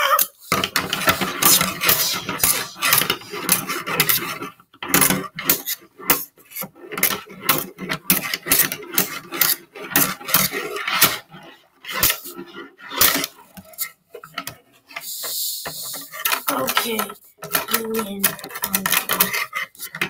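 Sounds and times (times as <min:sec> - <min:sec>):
scissors clashing and scraping: 0:00.0 - 0:04.2, 0:15.7 - 0:20.0
scissors sliding over tabletop: 0:00.5 - 0:04.4.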